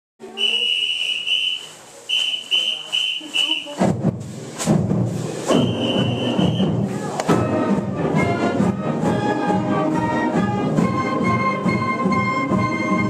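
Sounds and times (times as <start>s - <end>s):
whistle blasts: 0.3s - 3.8s, 5.5s - 6.8s
marching band playing: 2.1s - 13.0s.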